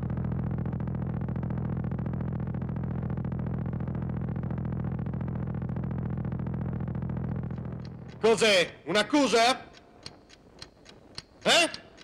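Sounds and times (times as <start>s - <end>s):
electronic drone with pulsing buzz: 0.0s - 8.8s.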